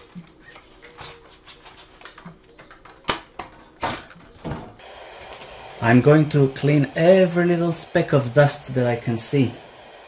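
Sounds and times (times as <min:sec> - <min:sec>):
plastic parts clicking and tapping: 0:00.0 - 0:04.8.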